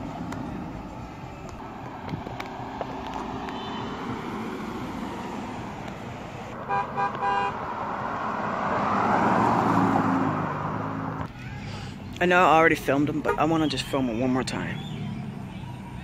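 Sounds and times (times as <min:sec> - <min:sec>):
cars passing by: 0:00.0 - 0:16.0
car horn honking: 0:03.4 - 0:04.2, 0:06.5 - 0:07.7, 0:13.2 - 0:13.9.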